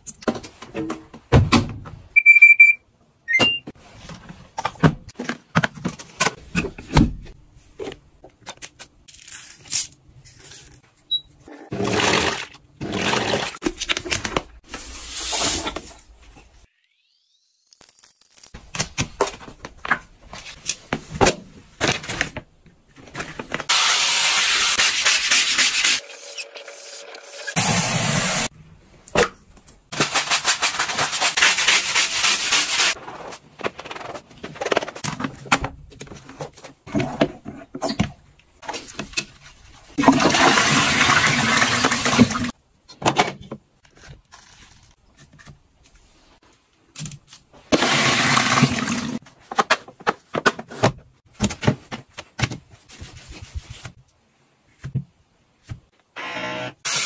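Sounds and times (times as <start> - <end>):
toilet brush scrubbing: 24.4 - 28.5, 30.0 - 33.0
toilet flushing: 40.0 - 42.5, 47.8 - 49.2.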